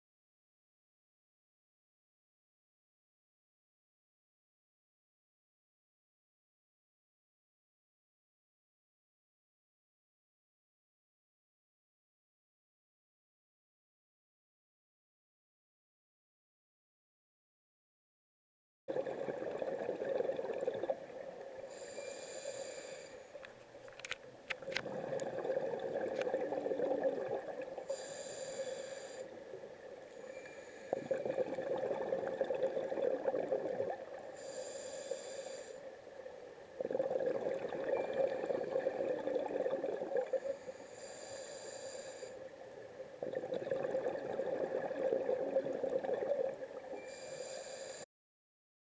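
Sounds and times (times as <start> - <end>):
bubbling exhalation: 18.9 - 21.0, 24.7 - 27.7, 31.0 - 34.1, 36.8 - 40.4, 43.2 - 46.6
regulator inhalation hiss: 21.6 - 23.4, 27.8 - 29.4, 30.2 - 31.2, 34.3 - 35.9, 40.4 - 42.5, 47.0 - 48.1.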